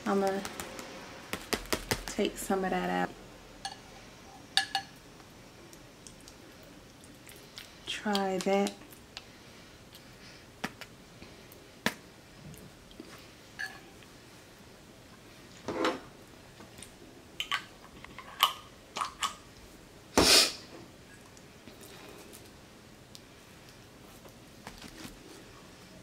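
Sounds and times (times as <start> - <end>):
tableware clicking and tapping: 4.6 - 5.0, 13.6 - 13.9.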